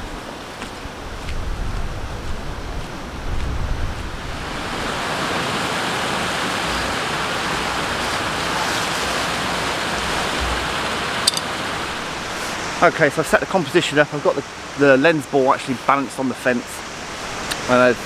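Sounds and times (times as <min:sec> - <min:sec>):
water rushing over rocks: 0:04.2 - 0:18.0.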